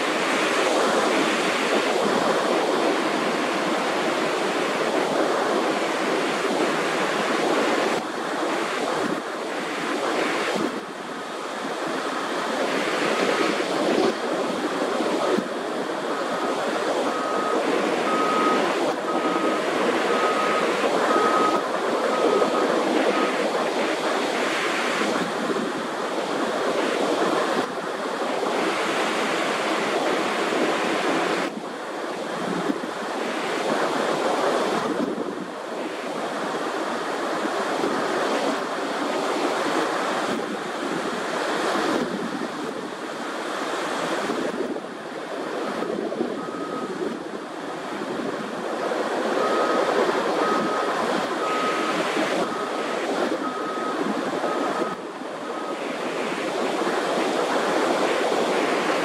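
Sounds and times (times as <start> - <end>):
steady rushing noise: 0.0 - 59.0
short high beeps: 17.1 - 23.4, 49.4 - 55.0.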